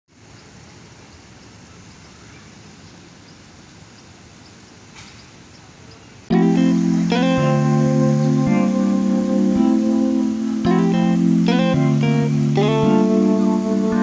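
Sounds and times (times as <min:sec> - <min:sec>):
outdoor background noise: 0:00.1 - 0:14.0
guitar music: 0:06.3 - 0:14.0.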